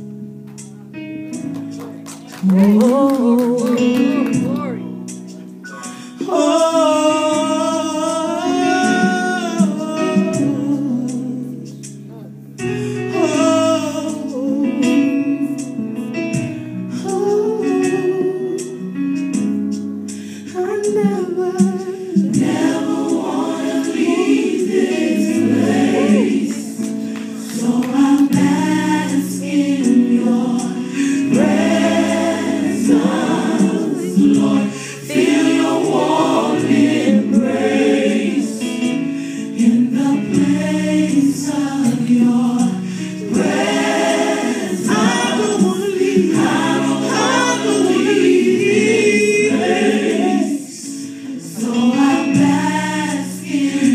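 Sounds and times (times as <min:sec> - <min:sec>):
choir singing gospel song: 0:05.6 - 0:12.0, 0:12.6 - 0:18.9, 0:20.2 - 0:53.9
singers breathing: 0:05.7 - 0:06.3, 0:20.1 - 0:20.6, 0:26.9 - 0:27.5, 0:30.8 - 0:31.3, 0:34.6 - 0:35.1, 0:39.0 - 0:39.6, 0:42.8 - 0:43.2, 0:50.8 - 0:51.5.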